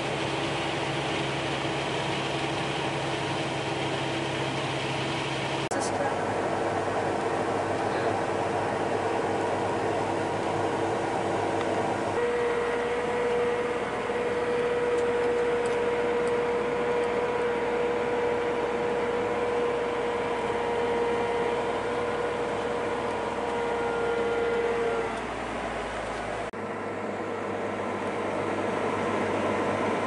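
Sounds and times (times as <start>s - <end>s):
harvest machinery engine: 0.0s - 30.0s
high steady whine: 0.0s - 30.0s.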